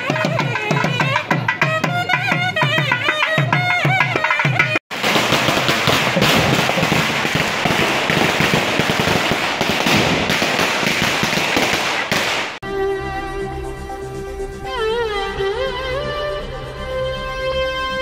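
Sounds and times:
drums beaten in rapid roll: 0:00.0 - 0:12.6.

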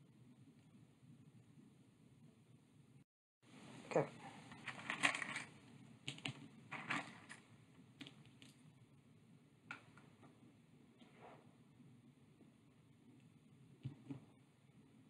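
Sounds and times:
wooden sticks clattering: 0:06.7 - 0:07.4.

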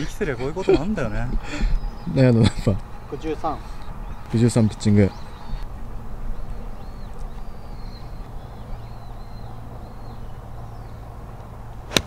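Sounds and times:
bird chirping: 0:00.0 - 0:11.5
steady low rumble: 0:00.0 - 0:12.0.

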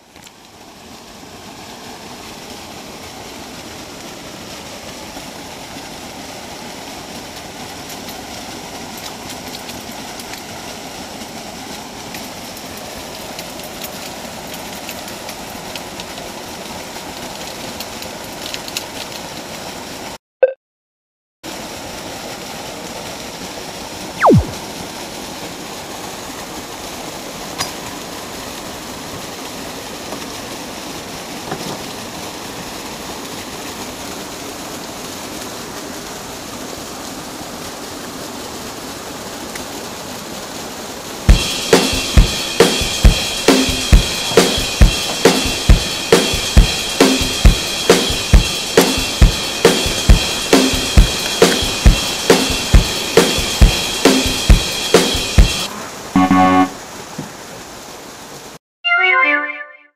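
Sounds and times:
water rushing over a weir: 0:00.0 - 0:20.2, 0:21.5 - 0:58.6
falling whine: 0:24.2 - 0:24.6, 0:41.3 - 0:56.8.

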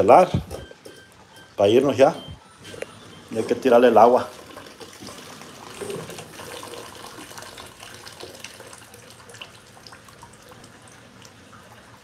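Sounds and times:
water splashing in washing machine: 0:03.4 - 0:12.0.

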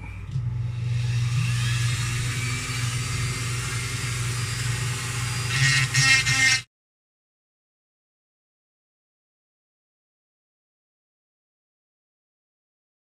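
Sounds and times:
rotary tool grinding wood: 0:01.0 - 0:06.7.

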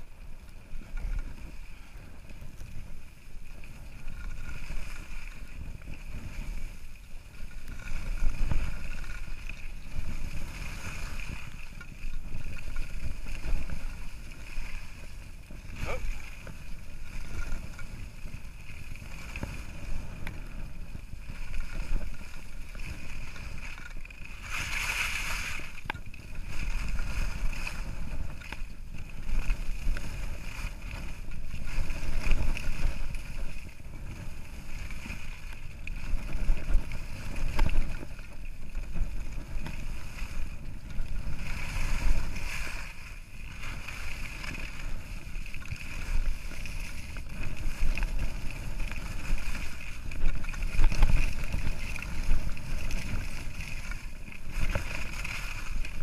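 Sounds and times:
wind on camera microphone: 0:00.0 - 0:56.0
skis hissing over snow: 0:07.9 - 0:11.6, 0:13.4 - 0:17.3, 0:24.3 - 0:28.3, 0:41.2 - 0:56.0.

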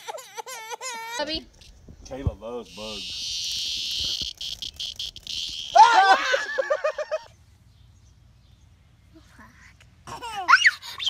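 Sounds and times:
child squealing and laughing: 0:00.0 - 0:01.4, 0:02.9 - 0:07.3, 0:10.1 - 0:11.0
large insect buzzing loudly: 0:02.6 - 0:06.0.

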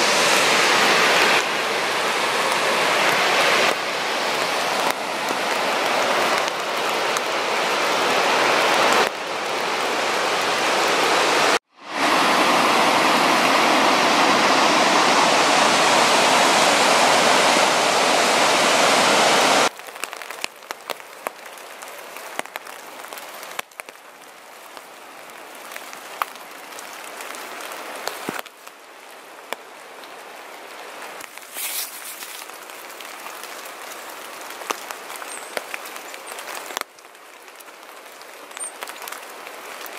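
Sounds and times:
waterfall roaring: 0:00.0 - 0:20.4
steady hiss: 0:31.3 - 0:32.8.

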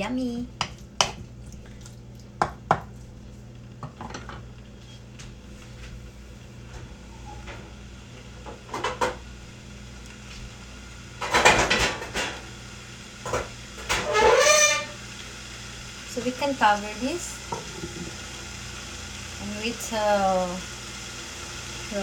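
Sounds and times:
wooden spatula knocking on pan: 0:02.4 - 0:02.9
pots and lids clattering: 0:11.2 - 0:12.4, 0:13.2 - 0:14.9.

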